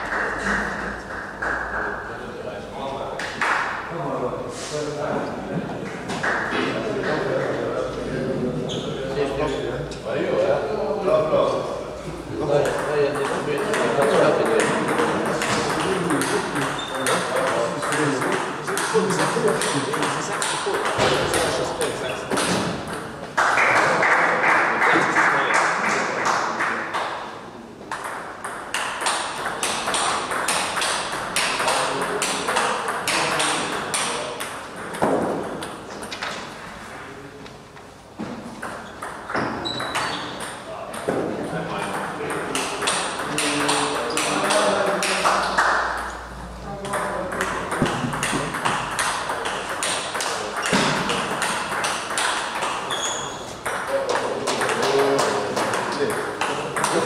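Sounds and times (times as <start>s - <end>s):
table tennis ball clicking: 46.8s - 52.9s.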